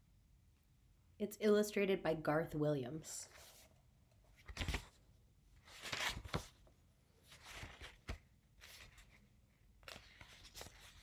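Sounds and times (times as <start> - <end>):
book pages rustling: 3.2 - 11.0.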